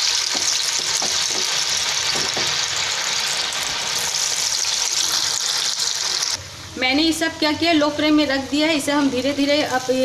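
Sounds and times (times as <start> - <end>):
potatoes sizzling in hot oil: 0.0 - 6.4.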